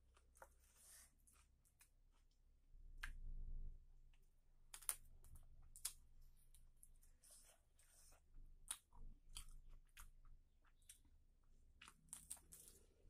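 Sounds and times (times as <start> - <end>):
person chewing with mouth clicks: 7.8 - 11.1.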